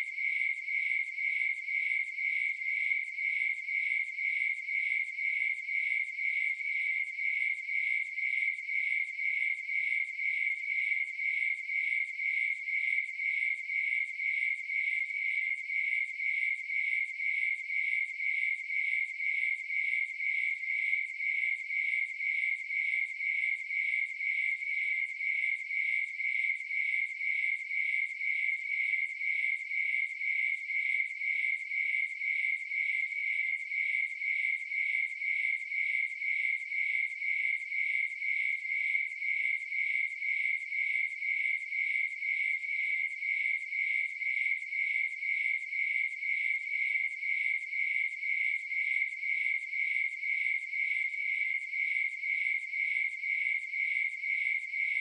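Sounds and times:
crickets chirping: 0.0 - 55.0.

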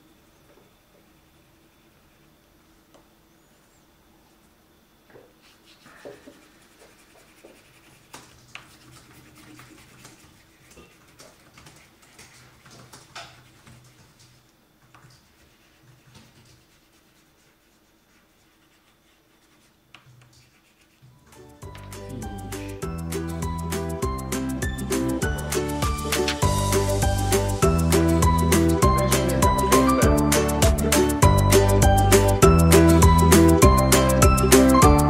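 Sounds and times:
crayon scribbling on paper: 5.4 - 14.2, 15.0 - 23.1.

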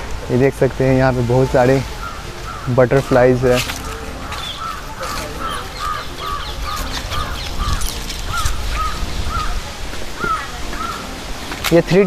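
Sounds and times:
crows cawing: 1.8 - 11.2.

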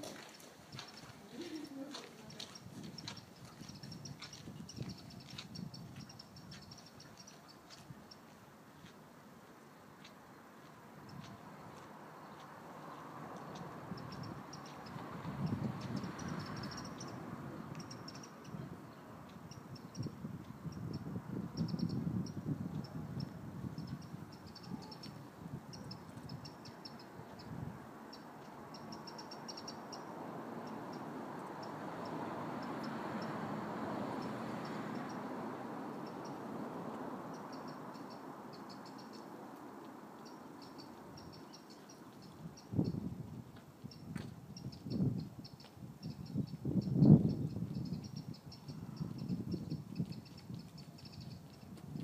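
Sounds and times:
small bird chirping: 0.3 - 8.3, 13.4 - 18.7, 19.4 - 30.1, 37.3 - 39.3, 40.2 - 43.1, 43.8 - 51.7.

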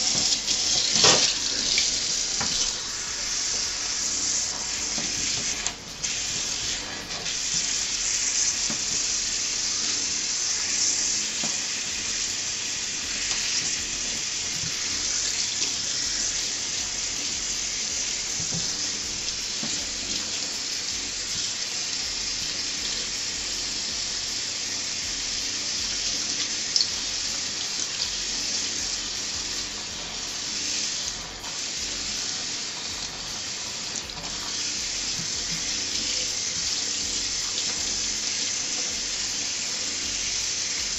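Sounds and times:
faucet water splashing into sink: 0.0 - 40.9.

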